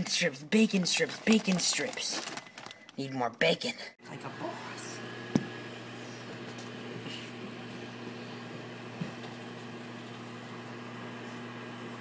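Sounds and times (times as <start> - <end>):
microwave oven humming: 4.0 - 12.0.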